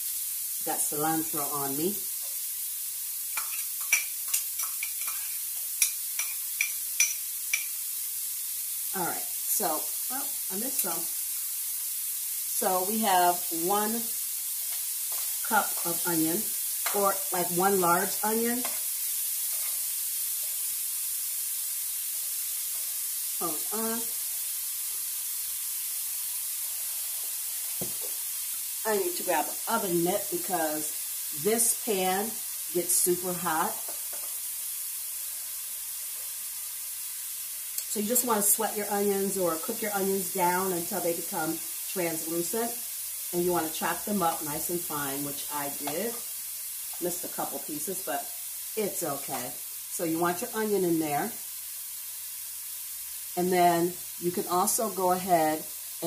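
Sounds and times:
onion sizzling in oil: 0.0 - 56.0
spoon clinking on pot: 3.4 - 7.7.

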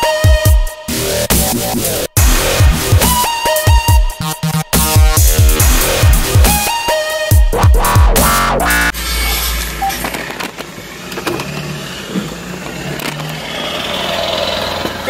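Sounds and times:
electronic dance music: 0.0 - 10.0
vehicle engine running: 8.8 - 15.0
outside noise through window: 8.9 - 15.0.

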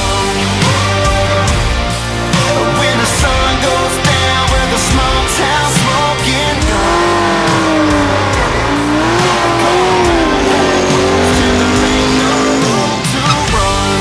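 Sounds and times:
engines revving high: 3.0 - 14.0
tyres spinning: 4.7 - 14.0.

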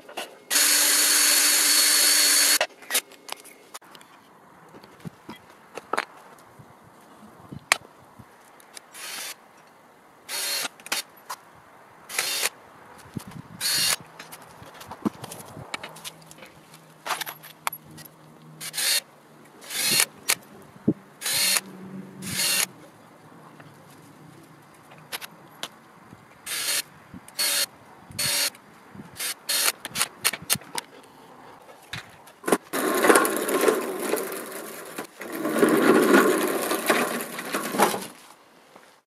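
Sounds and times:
metal frame scraping on pavement: 31.5 - 38.4.

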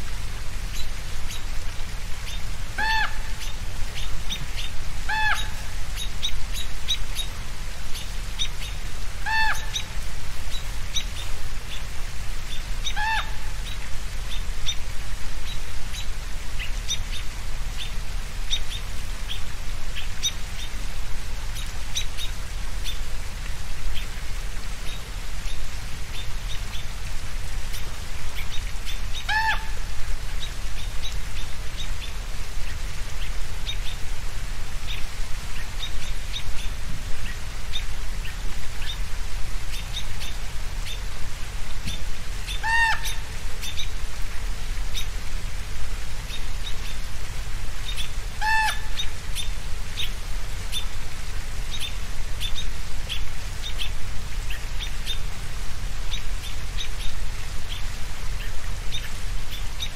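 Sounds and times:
loud clear bird calls: 2.2 - 7.3, 8.0 - 9.9, 12.5 - 14.8, 28.4 - 29.8, 41.9 - 43.9, 47.8 - 50.1.

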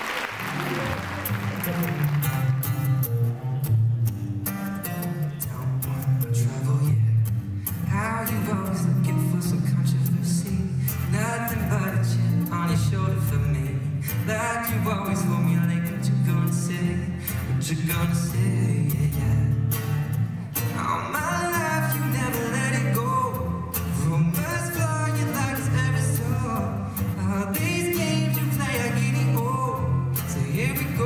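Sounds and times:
acoustic guitar strumming: 0.3 - 31.0
man singing into a microphone: 5.3 - 19.8, 20.6 - 31.0.

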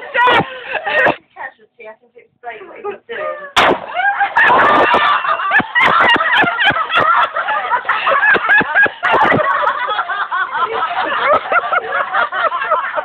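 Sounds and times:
bangers exploding: 3.6 - 5.2.

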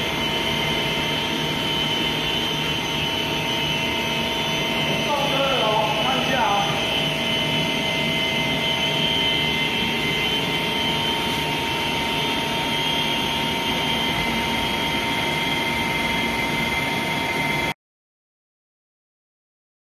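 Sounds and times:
machine hum with high whine: 0.0 - 17.8.

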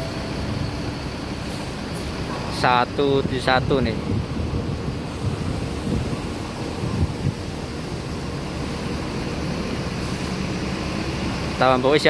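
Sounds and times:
buses idling: 0.0 - 12.0
wind buffeting microphone: 3.1 - 11.5.

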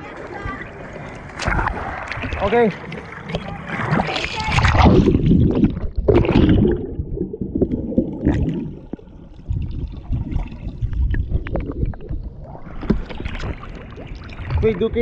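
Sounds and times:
underwater gurgle: 0.9 - 15.0
splash into pool: 1.3 - 6.9.

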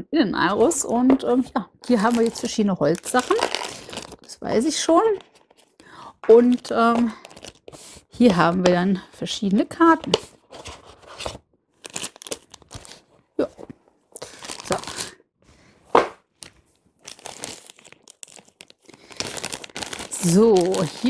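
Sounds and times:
plastic packaging rustling: 0.6 - 8.7, 9.8 - 15.2, 15.8 - 21.0
loud plastic crackle: 1.9 - 4.3, 11.8 - 13.1, 14.2 - 15.2, 16.4 - 21.0.

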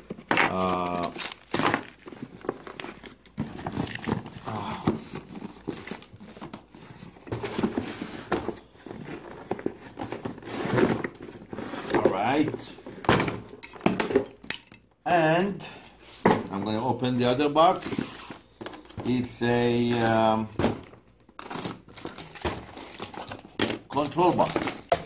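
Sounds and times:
cardboard scraping and rustling: 2.0 - 13.1, 16.2 - 19.0.

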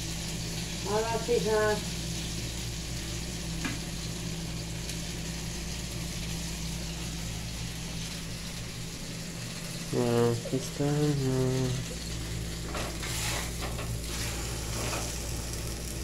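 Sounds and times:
low steady hum: 0.0 - 16.0
tortillas sizzling in pan: 0.0 - 16.0.

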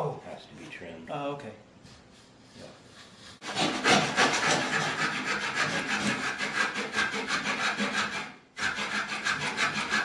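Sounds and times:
hand saw cutting wood: 3.4 - 10.0.

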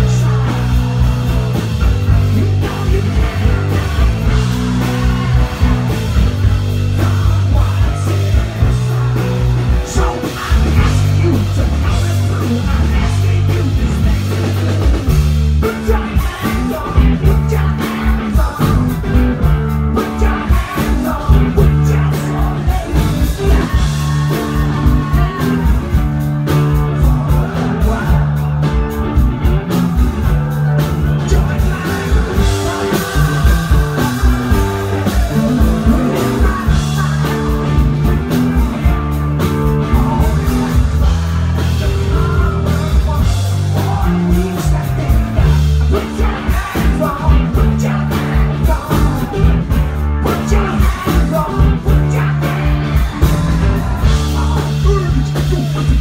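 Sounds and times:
bass guitar: 0.0 - 56.0
drum kit beat: 0.0 - 56.0
electric guitars: 0.0 - 56.0
person singing: 0.0 - 56.0.

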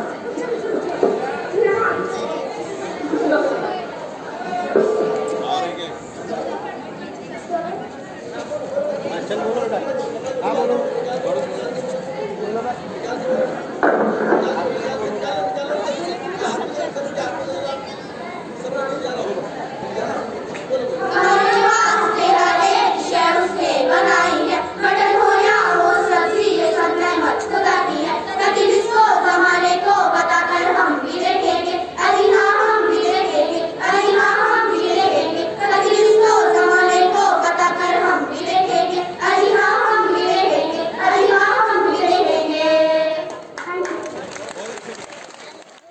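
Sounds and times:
girls singing together: 20.9 - 43.6
rhythmic handclapping: 43.2 - 45.9.

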